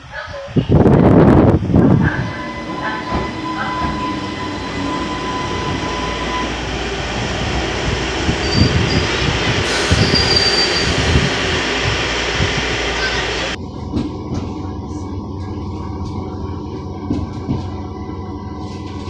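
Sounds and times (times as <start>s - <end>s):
train whine: 0.8s - 19.0s
train brakes squealing: 2.0s - 11.8s, 12.8s - 13.6s.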